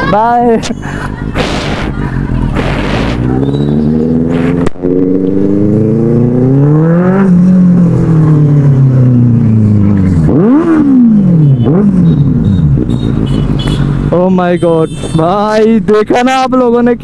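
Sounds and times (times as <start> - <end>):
motorbike engine revving: 1.4 - 14.1.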